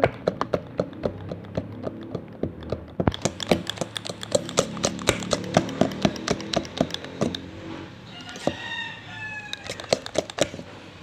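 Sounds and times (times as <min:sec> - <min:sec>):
whisk clicking against bowl: 0:00.3 - 0:07.5, 0:09.5 - 0:10.6
rooster crowing: 0:04.7 - 0:10.6.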